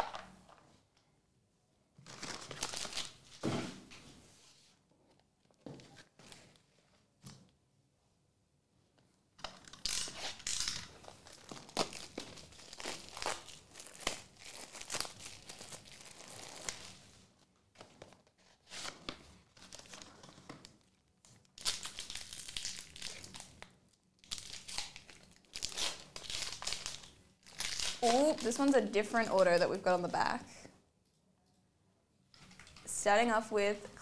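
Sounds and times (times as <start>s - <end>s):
plastic wrapper crinkling and tearing: 2.0s - 3.4s, 9.4s - 29.8s.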